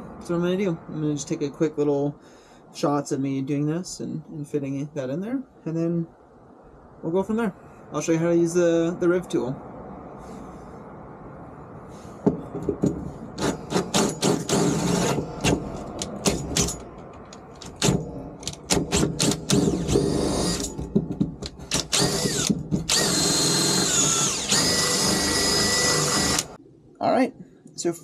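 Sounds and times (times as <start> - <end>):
cordless drill whining: 13.4 - 16.7, 17.7 - 20.8, 21.6 - 26.6.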